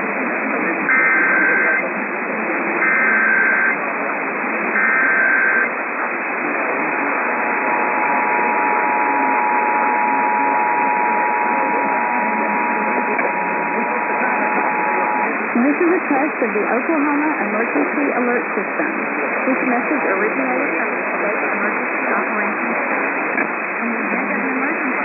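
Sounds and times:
radio static hiss: 0.0s - 25.0s
data bursts: 0.8s - 1.9s, 2.8s - 3.8s, 4.6s - 17.5s
two-tone alert signal: 0.9s - 1.8s, 2.8s - 3.8s, 4.8s - 5.7s.

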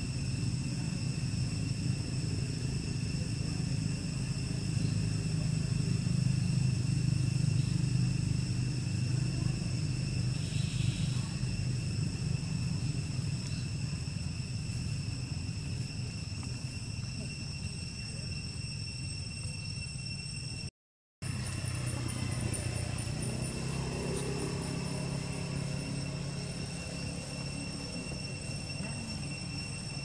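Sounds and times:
steady low rumble: 0.0s - 30.0s
thin high-pitched whine: 14.7s - 30.0s.

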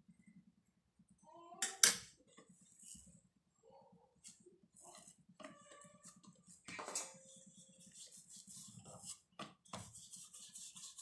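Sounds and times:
dough rubbing on wooden board: 4.3s - 11.0s.

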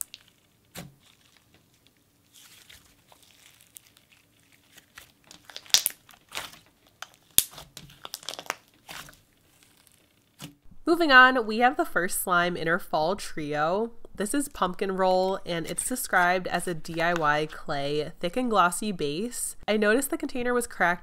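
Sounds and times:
slime crackling and popping: 0.0s - 10.5s.

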